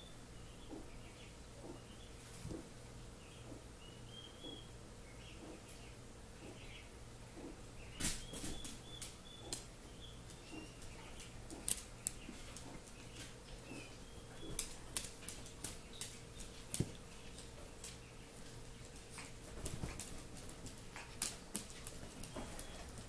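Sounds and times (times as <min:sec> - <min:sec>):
paws scrabbling on fabric: 0:10.4 - 0:23.0.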